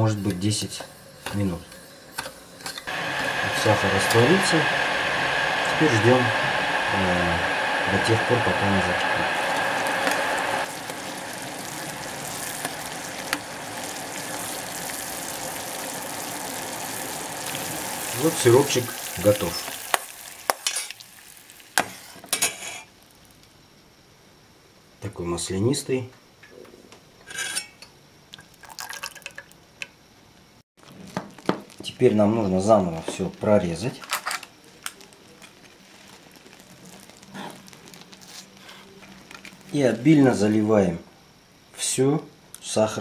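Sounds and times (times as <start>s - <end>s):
syrup boiling in a pot: 0.0s - 23.6s, 28.3s - 29.7s, 30.8s - 40.5s
syrup dripping and splashing: 9.5s - 21.8s, 28.3s - 29.6s, 34.8s - 38.2s.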